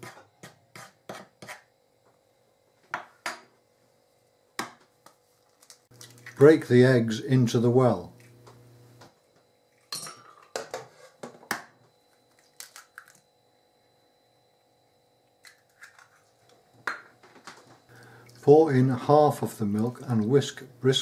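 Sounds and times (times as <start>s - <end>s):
egg cracking on bowl rim: 12.3s - 13.2s.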